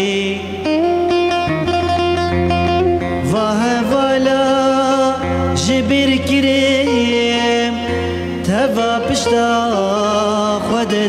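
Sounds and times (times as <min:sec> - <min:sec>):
ornamented folk melody: 0:00.0 - 0:11.0.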